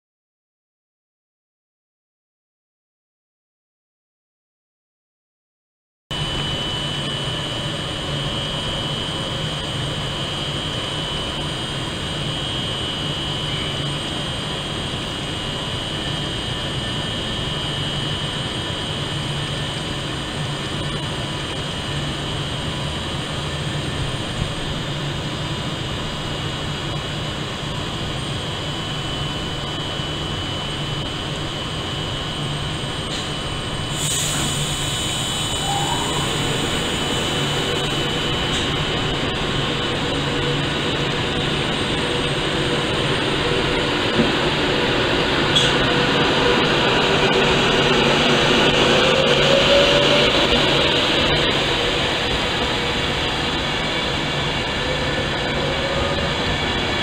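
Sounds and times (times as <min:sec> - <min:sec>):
thin high whine: 0:06.1 - 0:57.0
train equipment humming: 0:06.2 - 0:57.0.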